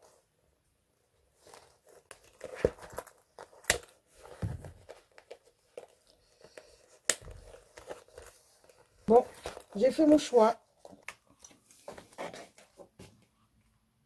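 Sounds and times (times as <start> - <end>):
bag rustling and crinkling: 1.2 - 12.8.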